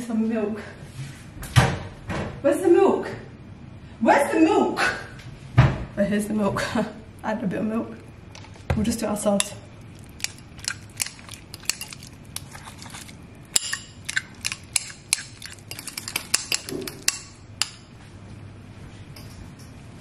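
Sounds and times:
metal spoon scraping ceramic bowl: 10.2s - 17.8s.

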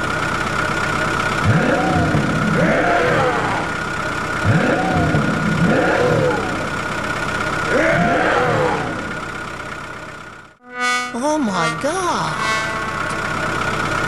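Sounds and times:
truck engine revving: 0.0s - 10.5s, 11.4s - 14.0s
steady high-pitched hum: 10.6s - 14.0s.

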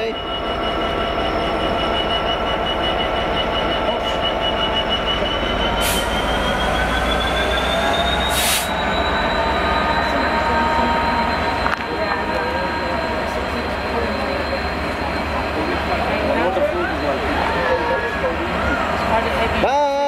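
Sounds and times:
train rolling past: 0.0s - 20.0s
high whine from wheels: 5.3s - 19.5s.

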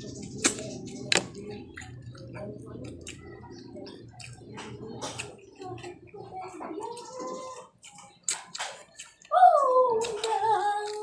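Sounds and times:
wet slurping and smacking: 7.4s - 9.3s.

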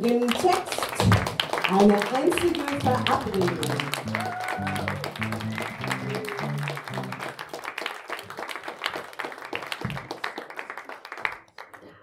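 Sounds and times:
audience applauding: 0.0s - 12.0s
low plucked guitar notes: 2.8s - 7.2s.

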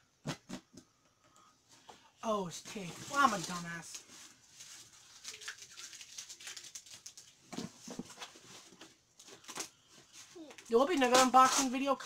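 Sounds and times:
cardboard box scrapes and crinkles: 11.0s - 11.9s.

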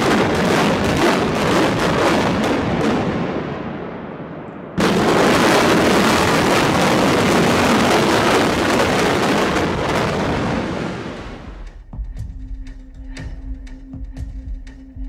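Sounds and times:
crackling of collapsing building: 0.0s - 3.6s, 4.8s - 11.4s
demolition charges exploding: 0.0s - 11.4s.

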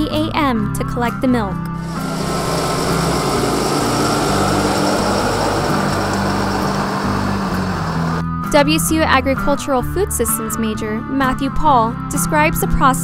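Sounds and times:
truck engine rumbling: 1.8s - 8.2s.

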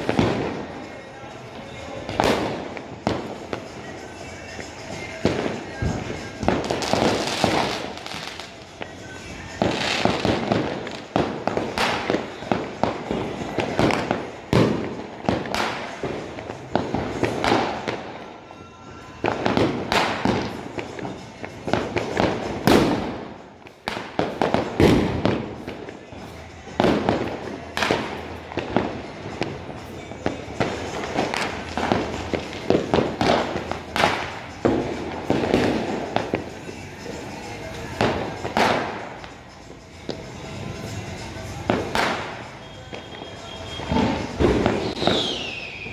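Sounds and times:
fireworks and firecrackers banging: 0.0s - 45.9s.

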